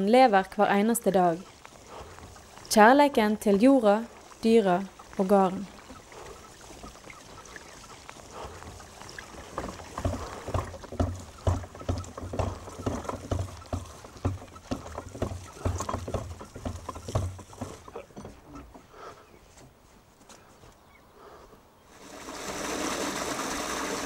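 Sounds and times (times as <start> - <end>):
horse cart knocking and rattling: 1.2 - 18.9, 22.0 - 24.0
dull thuds: 8.3 - 18.9.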